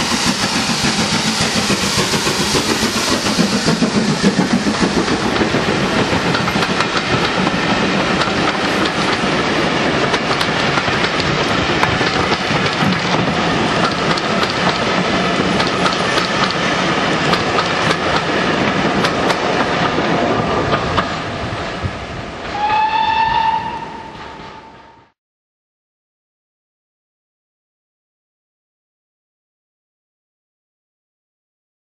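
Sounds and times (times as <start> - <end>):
train wheels rumbling on rails: 0.0 - 25.2
locomotive whistle: 22.5 - 25.1.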